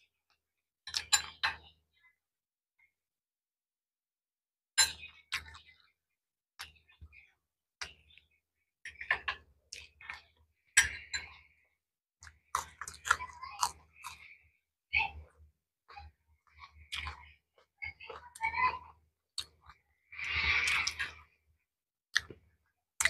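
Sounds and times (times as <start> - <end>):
cutlery clinking on plates: 0.9 - 1.6, 4.8 - 5.2
eating sounds: 12.2 - 14.4, 15.0 - 21.4, 22.1 - 22.4.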